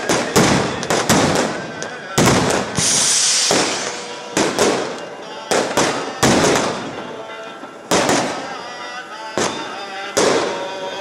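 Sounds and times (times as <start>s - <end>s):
firework fizzing hiss: 0.0s - 7.0s
firecracker bangs echoing: 0.0s - 11.0s.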